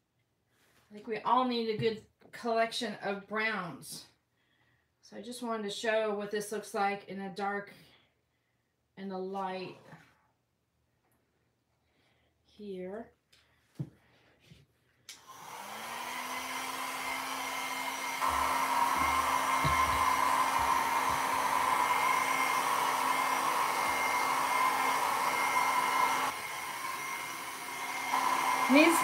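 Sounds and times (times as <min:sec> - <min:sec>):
hair dryer whirring: 0:15.1 - 0:29.0.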